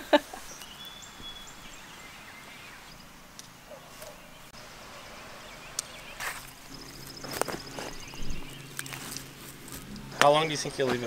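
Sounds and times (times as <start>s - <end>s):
rustling of netting: 0.0s - 11.0s.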